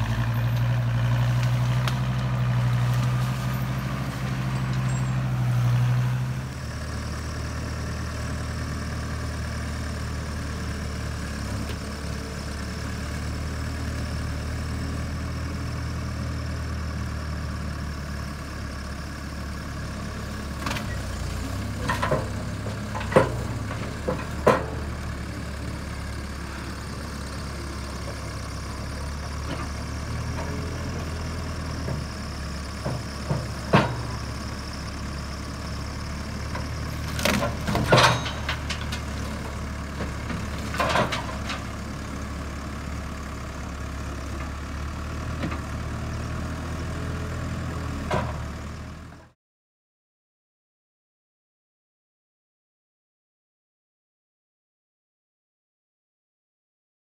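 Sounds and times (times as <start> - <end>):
diesel engine running: 0.0 - 49.3
sharp knocks and clanks: 21.8 - 24.9.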